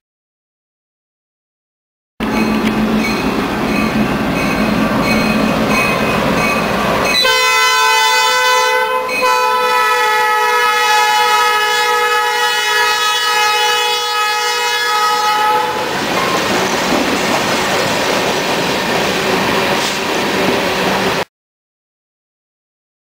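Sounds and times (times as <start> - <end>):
train wheel noise: 2.2 - 8.3, 14.9 - 21.3
diesel locomotive engine: 2.2 - 21.3
locomotive air horn chord: 7.1 - 16.0.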